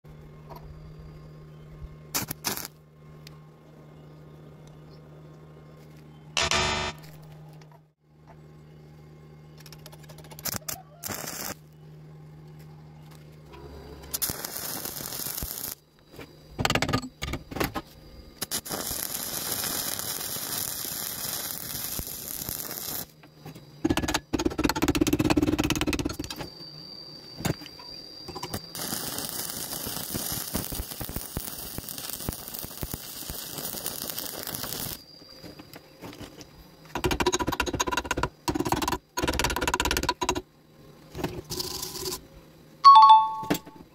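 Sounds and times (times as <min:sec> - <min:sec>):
steady low hum: 0:00.1 - 0:10.4
welding arc crackling and sizzling: 0:02.1 - 0:02.8, 0:09.6 - 0:11.7, 0:13.9 - 0:15.9, 0:18.4 - 0:23.2, 0:28.3 - 0:40.4, 0:41.4 - 0:42.2.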